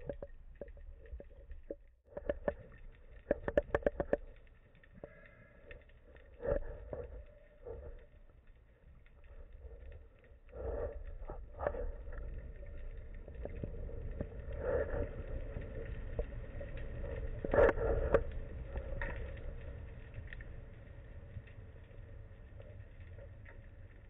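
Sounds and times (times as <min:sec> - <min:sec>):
sharp underwater clicks: 0:00.0 - 0:15.0
muffled underwater rumble: 0:00.0 - 0:24.0.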